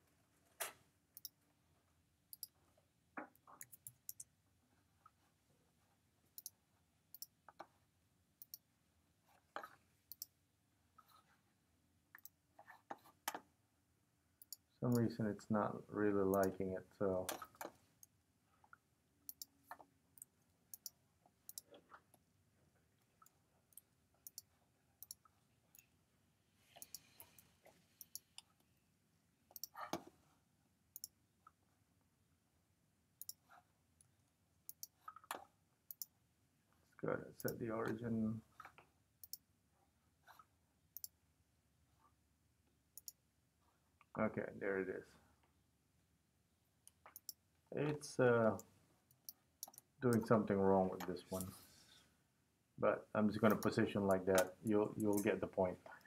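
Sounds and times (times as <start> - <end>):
computer mouse clicks: 0.6 - 1.4, 2.3 - 2.6, 3.3 - 4.3, 6.4 - 7.7, 8.4 - 8.7, 9.6 - 10.4, 12.2 - 13.4, 14.4 - 15.1, 17.3 - 21.8, 23.2 - 25.9, 26.8 - 28.7, 29.5 - 30.1, 31.0 - 31.2, 33.2 - 33.5, 34.7 - 36.1, 38.6 - 39.5, 41.0 - 41.2, 46.8 - 47.4, 48.6 - 50.3, 53.4 - 55.3
faint computer mouse clicks: 26.8 - 28.5.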